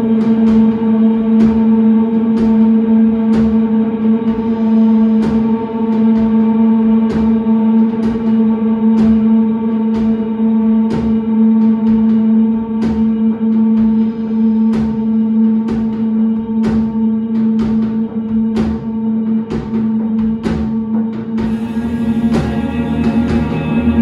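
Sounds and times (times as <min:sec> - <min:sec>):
drum and cymbal hits: 0:00.0 - 0:24.0
guitar and bass drone: 0:21.4 - 0:24.0.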